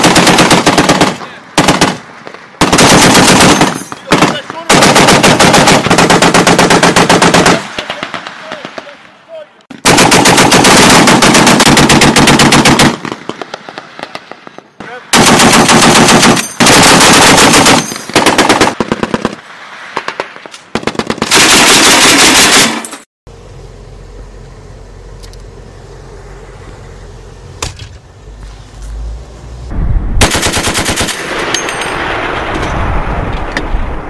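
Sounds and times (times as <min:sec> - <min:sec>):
machine gun firing bursts: 0:00.0 - 0:02.0, 0:02.6 - 0:08.8, 0:09.8 - 0:14.1, 0:15.1 - 0:19.4, 0:20.8 - 0:23.0, 0:30.2 - 0:31.5
steady low sound: 0:23.3 - 0:30.5.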